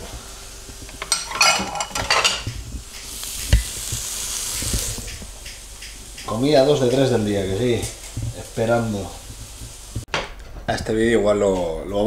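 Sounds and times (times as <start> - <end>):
cheese sizzling in a grill pan: 0.0 - 10.1
plate clinking and clattering: 1.0 - 2.5.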